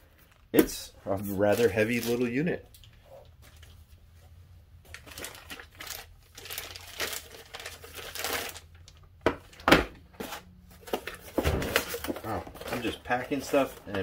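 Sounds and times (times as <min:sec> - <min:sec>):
plastic-wrapped foam crinkling: 0:04.9 - 0:09.0, 0:10.8 - 0:14.0
cardboard packaging rustling: 0:04.9 - 0:09.6, 0:10.2 - 0:14.0.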